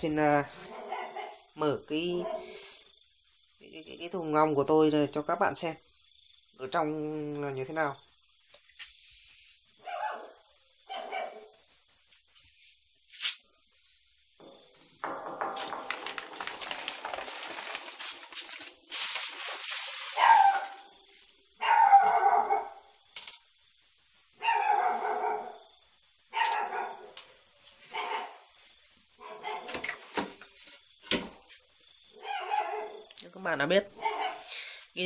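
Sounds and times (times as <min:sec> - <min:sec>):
crickets chirping: 0:00.0 - 0:35.0
dog barking: 0:00.6 - 0:01.5, 0:02.2 - 0:02.6, 0:09.8 - 0:11.6, 0:20.2 - 0:20.9, 0:21.6 - 0:22.9, 0:24.4 - 0:25.6, 0:26.3 - 0:27.2, 0:27.9 - 0:28.4, 0:29.2 - 0:29.8, 0:32.2 - 0:33.1, 0:34.0 - 0:34.6
rustling and scraping: 0:13.1 - 0:13.4, 0:14.4 - 0:21.6.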